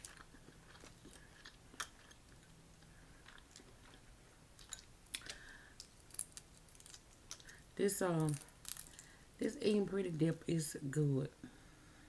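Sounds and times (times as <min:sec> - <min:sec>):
faint chewing: 0:00.0 - 0:09.2
shell cracking as peeled: 0:04.6 - 0:07.6, 0:08.2 - 0:09.1.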